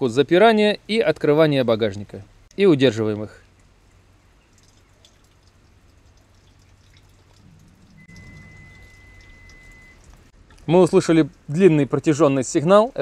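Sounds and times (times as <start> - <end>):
long high beep: 8.0 - 10.0.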